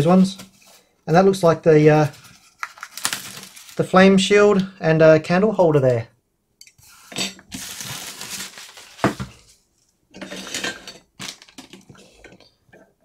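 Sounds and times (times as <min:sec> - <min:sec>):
packaging rustling: 0:02.0 - 0:03.9, 0:07.5 - 0:09.6, 0:11.2 - 0:11.9
plastic and metal parts set down: 0:08.8 - 0:09.5, 0:10.2 - 0:12.4.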